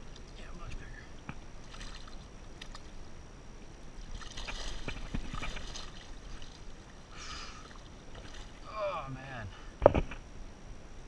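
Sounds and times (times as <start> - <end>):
fish splashing in water: 1.6 - 3.0, 4.0 - 8.7.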